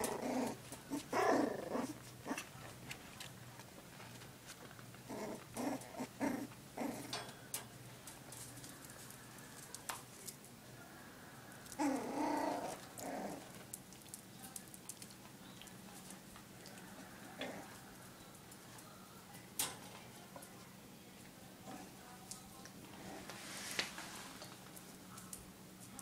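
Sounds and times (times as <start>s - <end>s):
puppies play-growling: 0.0s - 10.5s, 11.6s - 18.7s, 22.7s - 25.1s.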